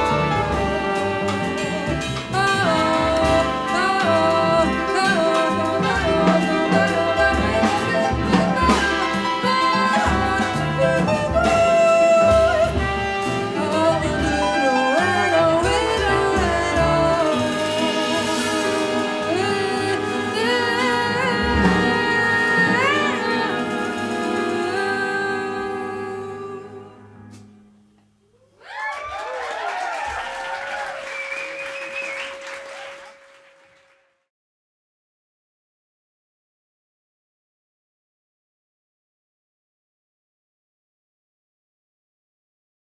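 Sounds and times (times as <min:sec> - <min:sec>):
plucked double bass: 0:00.0 - 0:23.0
woman singing: 0:00.0 - 0:27.1
trumpet: 0:00.0 - 0:27.5, 0:30.3 - 0:34.1
jazz band held chord: 0:00.0 - 0:28.0
cheers and whistles: 0:28.6 - 0:34.0
audience applause: 0:28.6 - 0:34.1.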